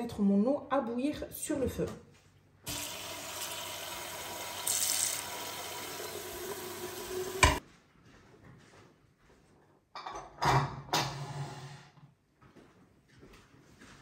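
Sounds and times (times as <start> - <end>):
tap water running into a pot: 2.7 - 7.6.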